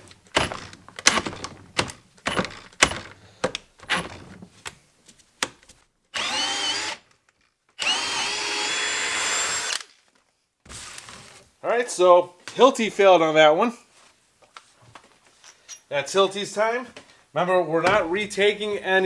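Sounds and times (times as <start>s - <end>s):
hammer drill stalling in wood: 0.3s - 4.4s
drill motor high whine: 6.2s - 7.0s, 7.8s - 9.9s.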